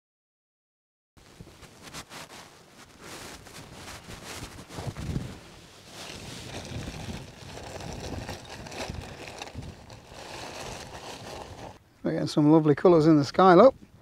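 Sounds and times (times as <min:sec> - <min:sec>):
wind buffeting microphone: 0:03.6 - 0:11.8.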